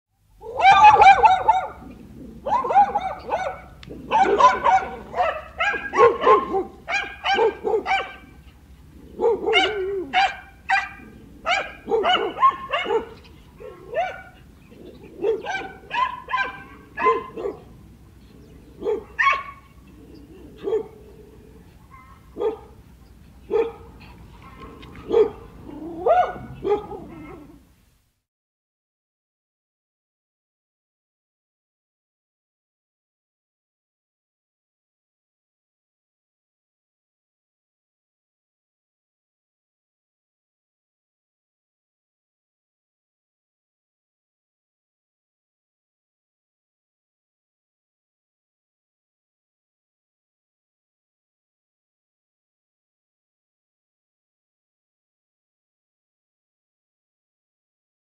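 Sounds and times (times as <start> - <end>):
dogs barking: 0.4 - 17.8, 18.7 - 21.2, 21.9 - 22.8, 23.4 - 27.6.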